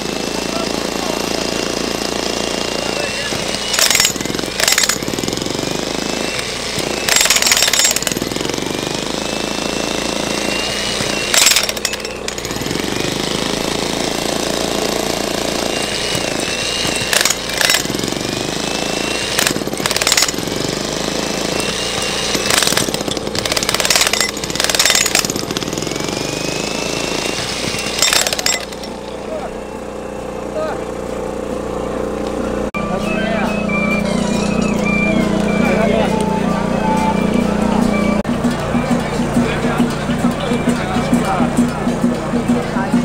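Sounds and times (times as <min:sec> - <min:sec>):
jackhammer pounding: 0:00.0 - 0:43.0.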